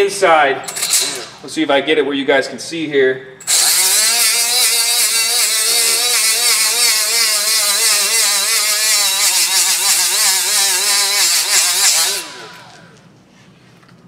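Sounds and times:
die grinder motor: 3.4 - 13.0.

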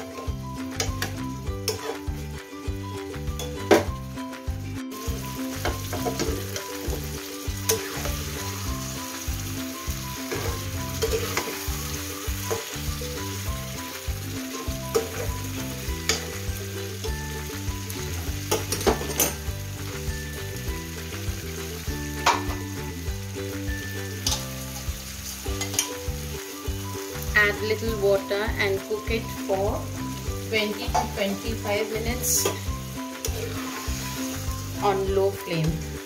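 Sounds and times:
chicken sizzling in oil: 0.0 - 36.0
soft background music: 0.0 - 36.0
metal spatula scraping pan: 1.6 - 2.1, 7.6 - 8.4, 10.1 - 12.8, 32.4 - 34.4.

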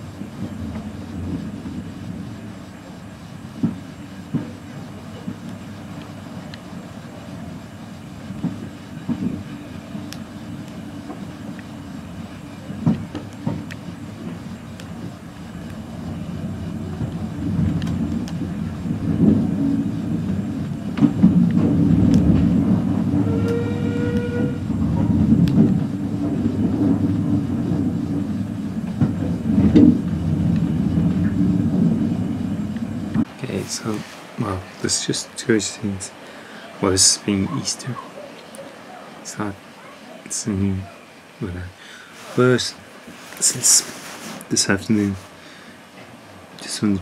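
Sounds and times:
wheels clicking over rail joints: 0.0 - 35.8
train carriage rumble: 0.0 - 47.0
train whistle tone: 23.1 - 24.7.

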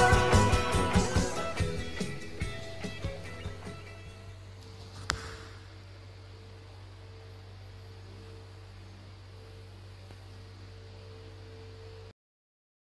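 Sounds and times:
steady hiss: 0.0 - 12.1
low electrical hum: 0.0 - 12.2
thin high steady tone: 5.3 - 12.1.

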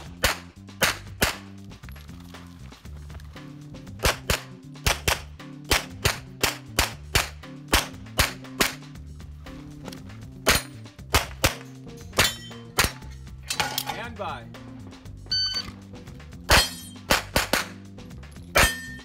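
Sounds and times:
rapid pistol shots: 0.0 - 1.5, 4.0 - 8.9, 10.4 - 11.7, 16.5 - 17.8.

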